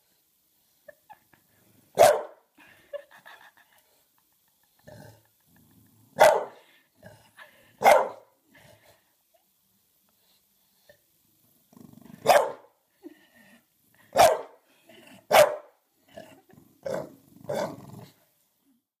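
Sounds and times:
dog barking: 2.0s - 2.4s, 6.2s - 6.6s, 7.8s - 8.3s, 12.2s - 12.7s, 14.1s - 14.6s, 15.3s - 15.7s
dog growling low rumble: 11.7s - 12.2s.

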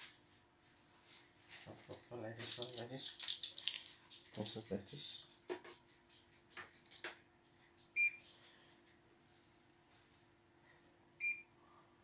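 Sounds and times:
faint steady hum: 0.0s - 12.0s
short electronic beeps: 8.0s - 8.2s, 11.2s - 11.5s.

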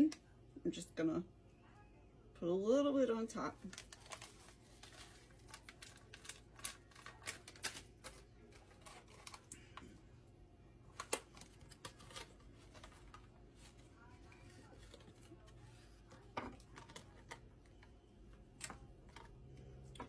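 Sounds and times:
plastic packaging crackling: 3.5s - 9.8s, 10.9s - 17.9s.

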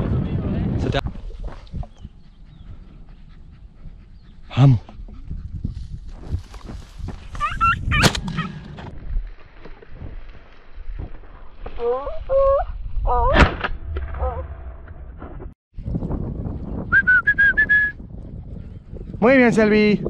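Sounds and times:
hounds yelping: 7.3s - 8.6s.

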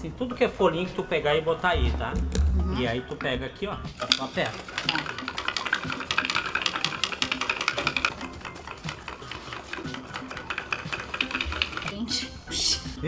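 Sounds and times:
faint background music: 0.0s - 13.0s
wooden spindle scratchy clicking: 4.0s - 12.0s.

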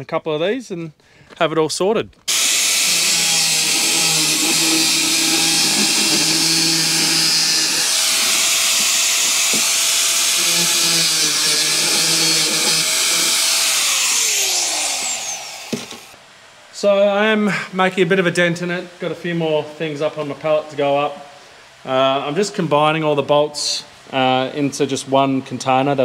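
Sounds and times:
angle grinder cutting plastic: 2.3s - 16.2s.

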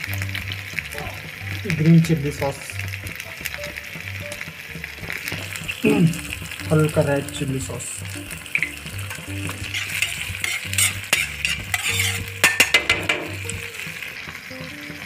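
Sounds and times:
vegetables sizzling in a pan: 0.0s - 15.0s
utensil scraping a pan: 8.5s - 13.5s.

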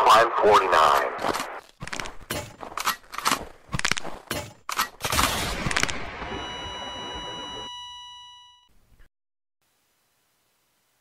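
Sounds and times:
high ringing tone: 6.0s - 8.7s.

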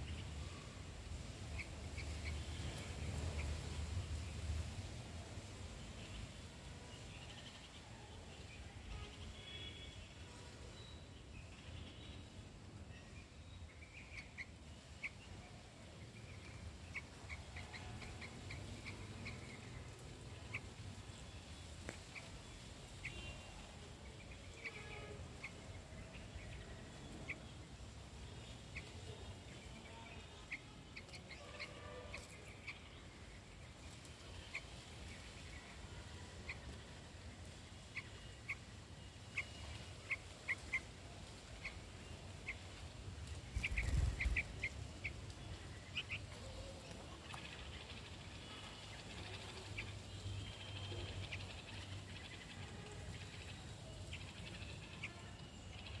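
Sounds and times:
young bird chirping: 43.5s - 44.8s.

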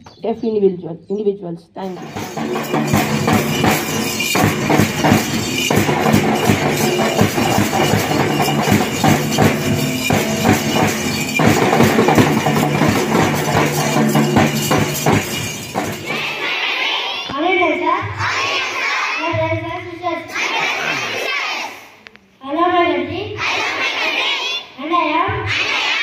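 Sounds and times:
hand cymbals clashing: 1.9s - 16.4s
bass drum beating: 2.0s - 16.1s.

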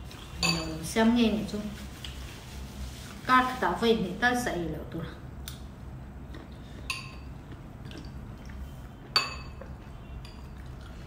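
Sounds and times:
metal spoons clinking on ceramic bowls: 0.4s - 0.8s, 6.9s - 7.3s, 9.1s - 10.7s.

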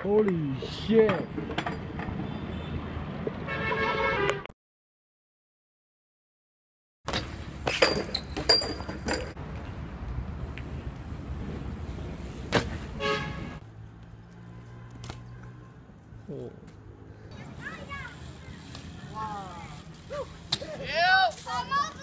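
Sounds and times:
bike clicks and knocks: 7.1s - 9.8s, 12.5s - 12.8s, 14.0s - 15.6s.

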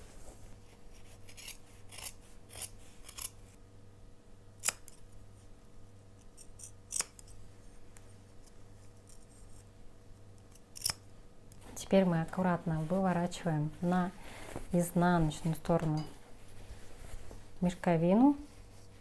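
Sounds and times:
scissors cutting fabric: 0.9s - 3.4s, 4.6s - 5.0s, 6.2s - 7.4s, 10.5s - 11.0s.

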